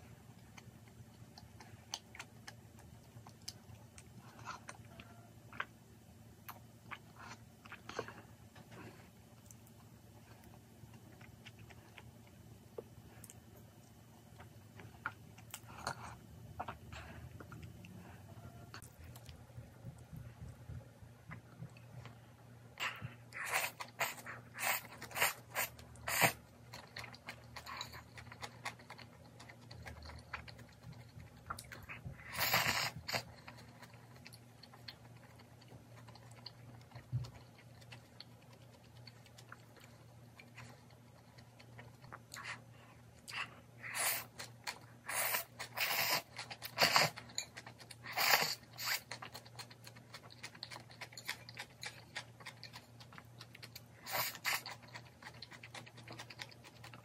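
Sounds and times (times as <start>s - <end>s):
noodles slurped: 22.8s - 26.4s, 43.3s - 53.1s, 53.8s - 57.0s
crunchy bean sprouts chewed: 43.2s - 57.0s.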